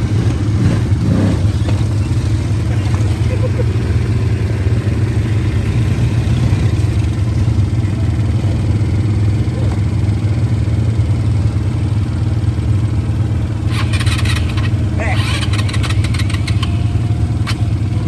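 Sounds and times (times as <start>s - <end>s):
engines idling: 0.0s - 18.0s.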